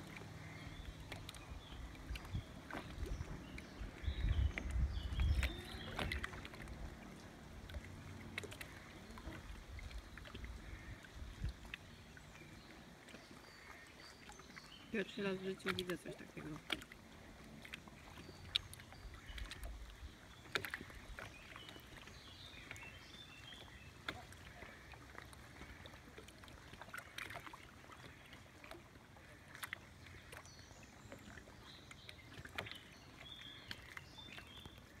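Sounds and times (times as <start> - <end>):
small waves lapping: 0.0 - 35.0.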